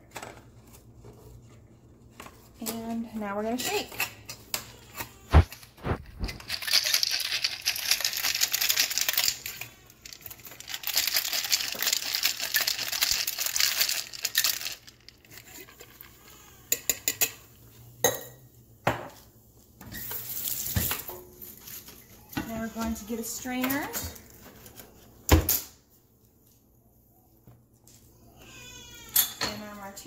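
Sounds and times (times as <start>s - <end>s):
ice rattling in a cocktail shaker: 6.2s - 16.1s.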